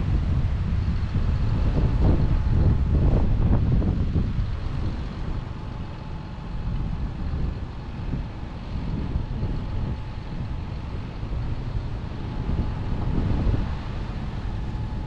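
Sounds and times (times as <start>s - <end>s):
faint steady whine: 0.0s - 15.0s
farm machinery engine rumble: 0.0s - 15.0s
wind buffeting microphone: 0.0s - 15.0s.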